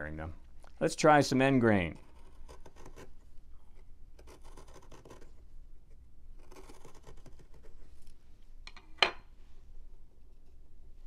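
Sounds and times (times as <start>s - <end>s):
gouge scraping wood: 1.9s - 3.2s, 4.2s - 5.3s, 6.4s - 7.8s.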